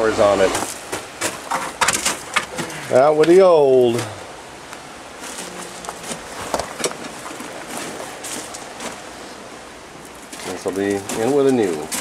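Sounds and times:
footsteps on gravel: 0:00.5 - 0:02.8, 0:05.2 - 0:09.2, 0:10.0 - 0:12.0.

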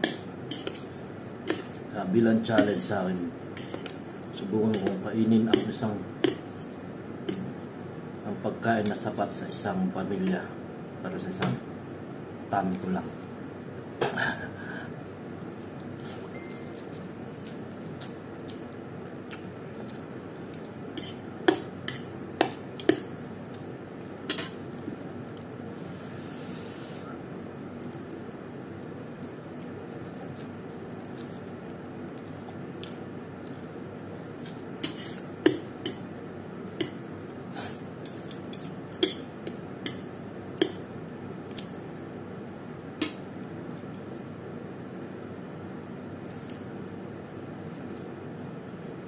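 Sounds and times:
fork clinking against plate: 0:00.0 - 0:00.8, 0:04.7 - 0:06.4, 0:38.1 - 0:40.9
steady background noise: 0:00.0 - 0:49.0
wet noodle-eating sounds: 0:15.4 - 0:25.6, 0:27.4 - 0:35.4, 0:46.1 - 0:48.3.

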